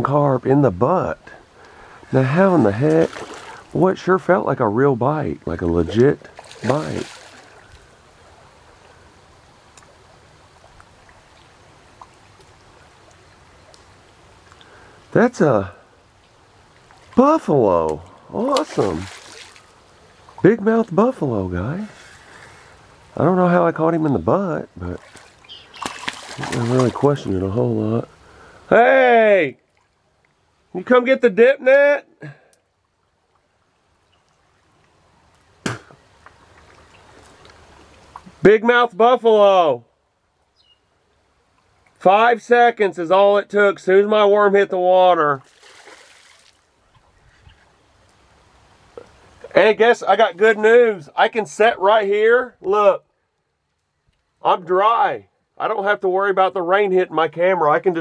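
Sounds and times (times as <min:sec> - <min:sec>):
faint flowing water: 0:00.0 - 0:58.0
faint clicks: 0:09.7 - 0:10.0, 0:12.0 - 0:14.8, 0:53.4 - 0:54.3
sharp knock: 0:35.6 - 0:36.0.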